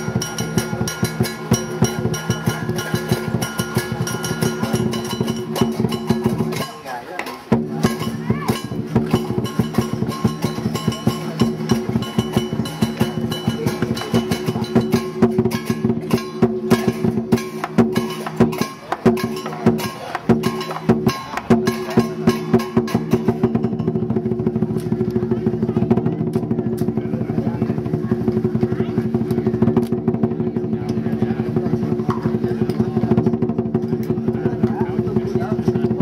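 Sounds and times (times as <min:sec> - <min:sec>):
gong: 0:00.0 - 0:06.8, 0:07.6 - 0:24.3
cymbals clashing: 0:00.0 - 0:36.0
large drum beating: 0:00.0 - 0:36.0.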